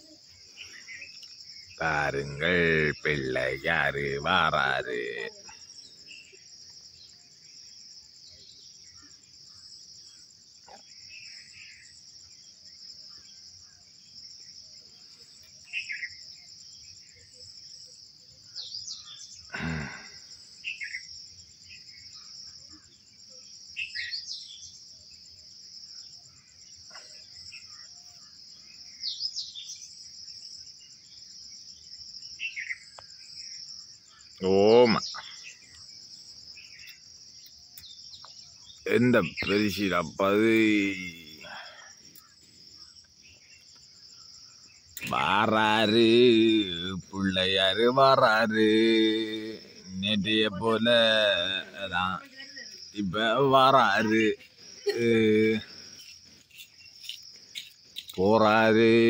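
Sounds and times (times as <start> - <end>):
bird chirps: 0.0 - 4.2, 15.0 - 25.0, 25.8 - 58.7
crickets chirping: 0.0 - 59.0.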